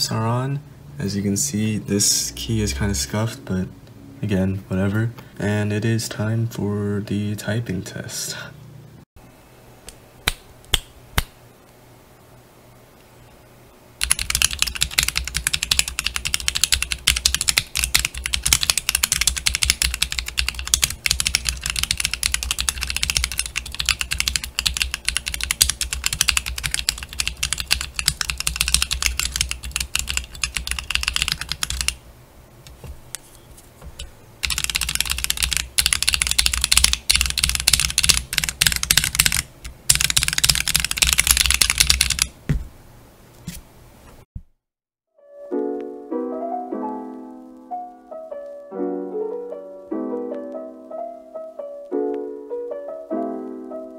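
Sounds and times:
fast typing on mechanical keyboard: 14.0 - 32.0, 34.4 - 42.4.

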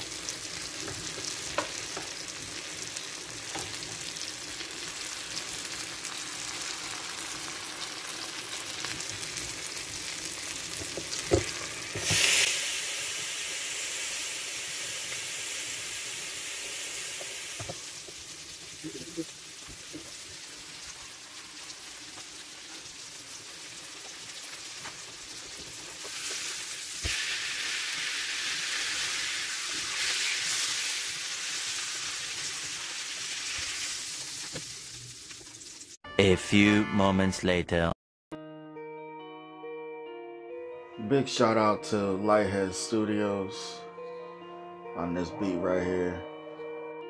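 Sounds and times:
steak sizzling: 0.0 - 36.0.

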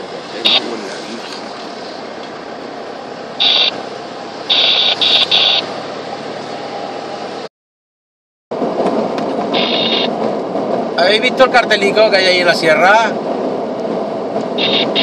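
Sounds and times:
engine and road noise inside vehicle: 0.0 - 7.5, 8.6 - 15.0
high electronic beeps: 3.4 - 3.8, 4.5 - 5.7, 14.6 - 15.0.

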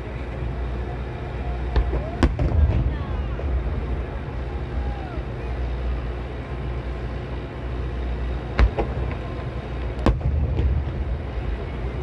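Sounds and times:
steady low rumble: 0.0 - 12.0
fireworks booming: 1.7 - 4.8, 8.5 - 12.0.

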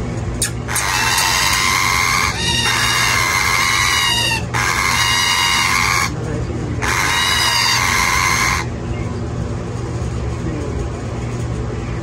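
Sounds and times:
parakeet chick begging cries: 0.4 - 6.2, 6.8 - 8.7.

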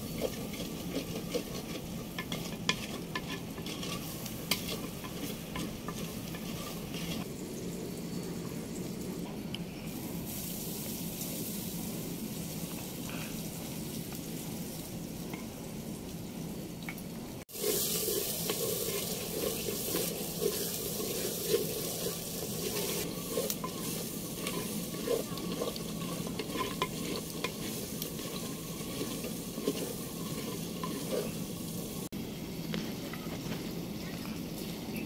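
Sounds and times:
wooden spatula scraping pot: 0.0 - 7.3, 17.5 - 32.1
frying hiss: 0.0 - 35.0
spatula knocking pot: 18.4 - 31.4.

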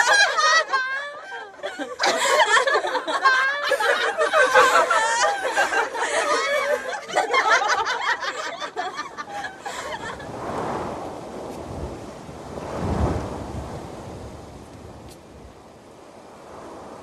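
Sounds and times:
women laughing: 0.0 - 10.3
rushing noise: 9.3 - 17.0.

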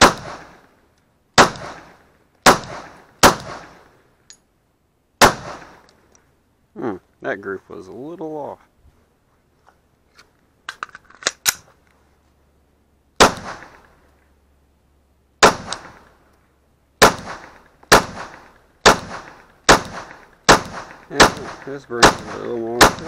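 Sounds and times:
pistol shots echoing: 0.0 - 0.6, 1.4 - 3.8, 5.2 - 5.8, 13.2 - 13.8, 15.4 - 16.0, 17.0 - 23.0.

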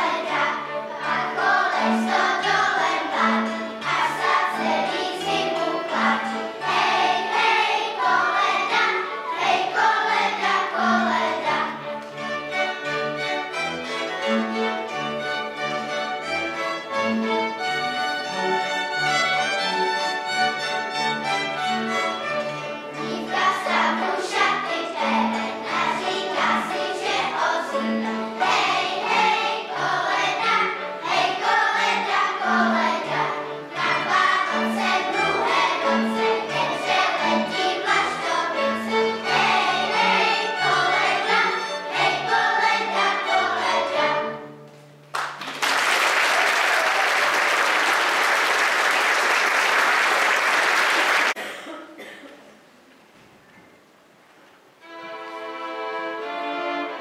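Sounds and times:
folk choir singing: 0.0 - 12.0, 19.3 - 44.6
fiddle and strings: 0.0 - 45.1, 54.7 - 57.0
audience applauding: 45.1 - 51.4.

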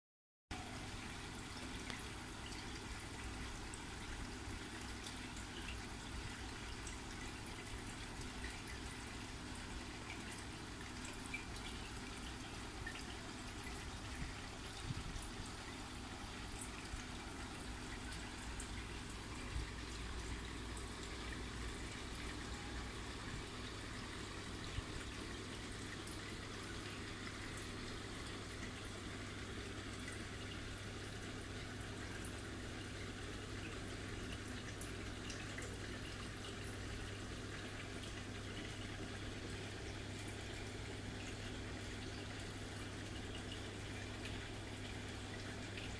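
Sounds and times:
aquarium water trickling: 0.5 - 45.9
constant low hum: 0.5 - 45.9
faint ticks: 1.7 - 2.7.

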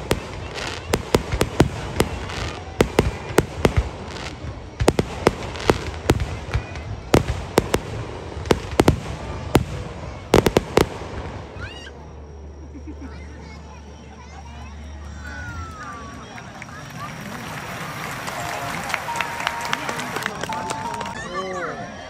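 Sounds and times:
firework shells bursting: 0.0 - 11.6.

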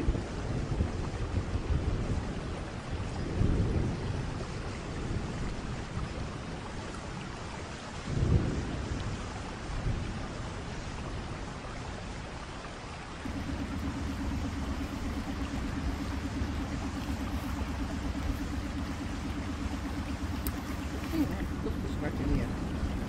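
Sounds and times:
wind buffeting microphone: 0.0 - 23.0
steady low hum: 13.2 - 23.0.

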